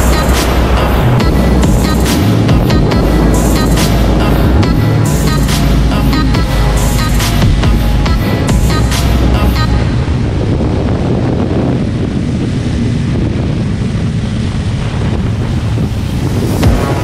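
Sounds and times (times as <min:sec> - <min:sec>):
motorcycle engine running: 0:00.0 - 0:09.8
wind rushing over microphone: 0:00.0 - 0:17.0.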